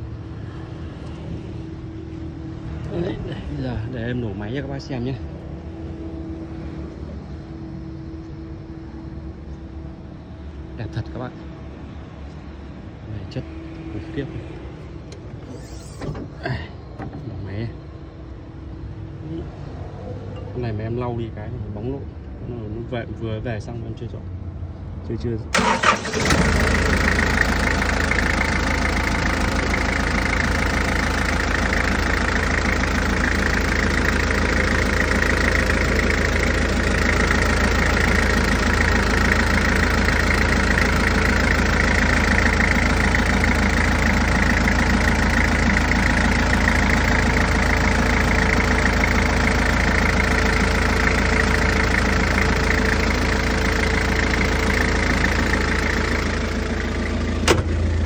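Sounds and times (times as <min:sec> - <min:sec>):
diesel engine idling: 0:25.5 - 0:58.0.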